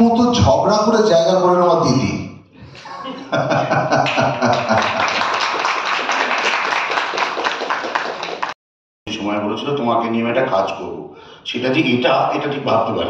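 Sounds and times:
crowd applause: 3.4s - 8.6s.

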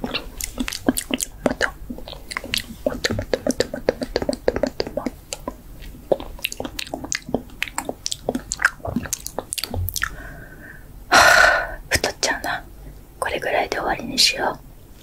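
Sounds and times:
mouth clicks: 0.0s - 10.2s
wet chewing sounds: 0.0s - 10.3s.

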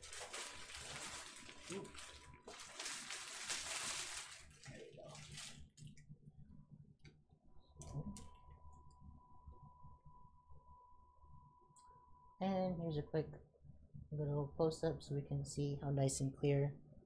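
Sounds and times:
plastic packaging rustling: 0.0s - 6.0s.

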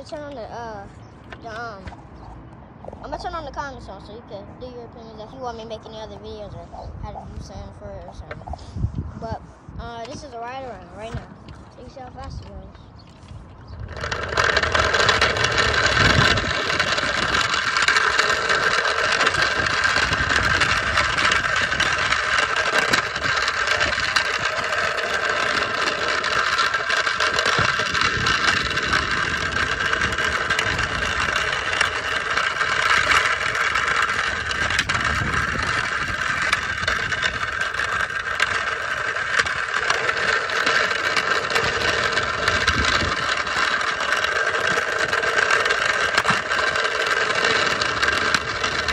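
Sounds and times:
small wheels rolling on asphalt: 0.0s - 48.9s
electric motors whining: 10.9s - 48.9s.

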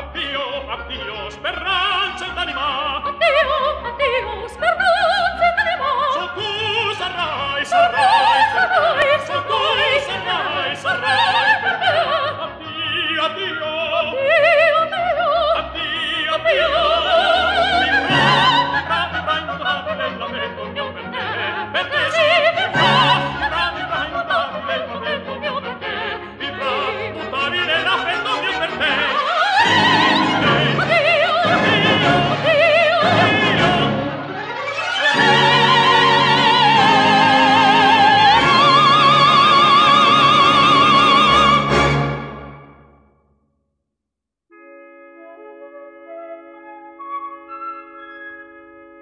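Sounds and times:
operatic singing: 0.0s - 42.8s
orchestral accompaniment: 15.8s - 43.0s, 44.5s - 49.0s.

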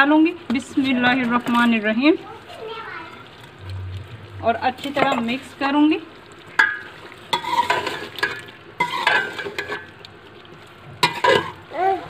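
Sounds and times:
oily gravy sizzling: 0.0s - 12.0s
metal ladle scraping pot: 3.3s - 10.2s, 10.9s - 11.7s.

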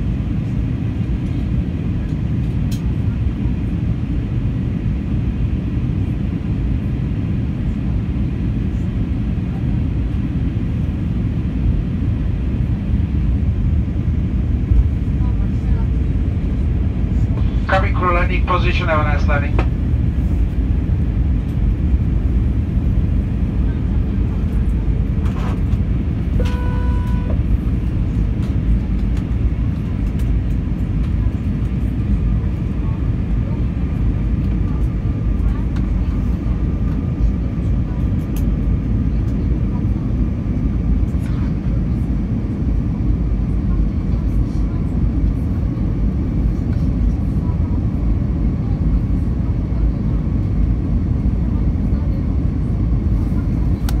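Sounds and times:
airplane cabin rumble: 0.0s - 54.0s
short steady tone: 26.4s - 27.4s.

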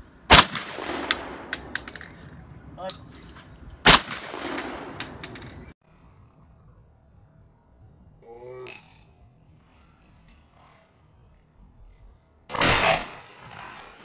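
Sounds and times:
shotgun shots with echo: 0.3s - 2.1s, 3.8s - 5.7s, 12.5s - 14.0s
faint sharp cracks: 0.3s - 3.0s, 3.9s - 5.7s.

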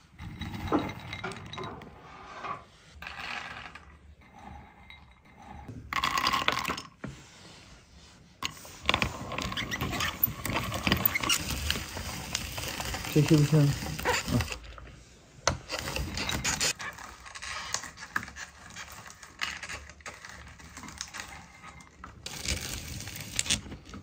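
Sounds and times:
utensils and dishes clinking: 0.0s - 2.6s, 8.9s - 14.8s, 15.5s - 17.0s.

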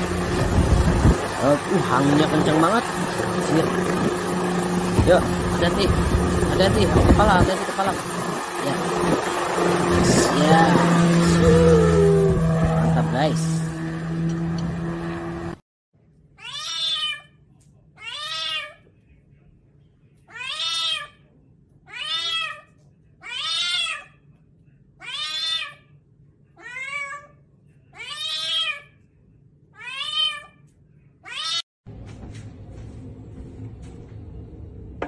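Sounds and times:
helicopter engine droning: 0.0s - 15.6s
cat meowing: 16.4s - 17.4s, 18.0s - 18.8s, 20.3s - 21.2s, 21.9s - 24.2s, 25.0s - 25.9s, 26.6s - 29.0s, 29.8s - 30.6s, 31.2s - 31.6s.

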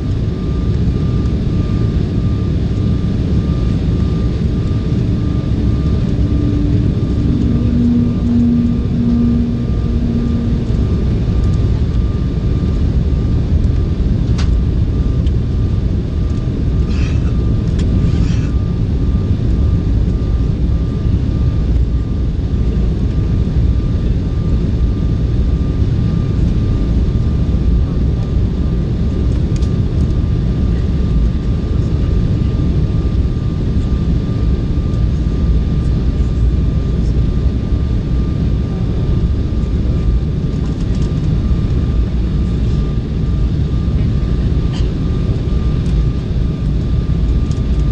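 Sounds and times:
airliner cabin rumble: 0.0s - 47.9s
faint high tone: 6.2s - 11.1s.

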